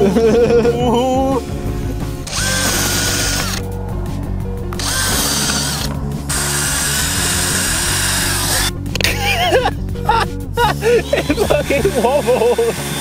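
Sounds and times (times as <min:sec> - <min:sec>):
background music: 0:00.0 - 0:13.0
cordless drill boring into pumpkin: 0:02.2 - 0:03.7, 0:04.8 - 0:08.7, 0:11.6 - 0:13.0.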